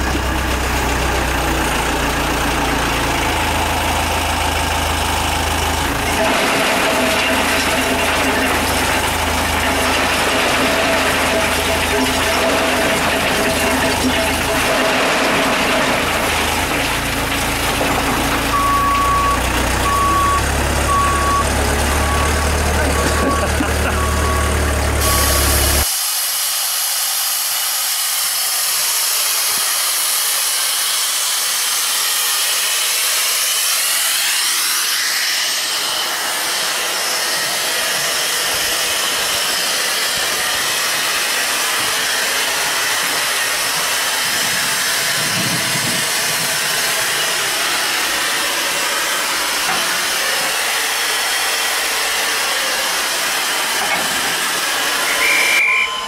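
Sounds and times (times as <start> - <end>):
engine running: 0.0 - 25.9, 27.0 - 56.0
reversing beeper: 18.4 - 25.8, 55.1 - 56.0
steam hissing: 25.1 - 56.0.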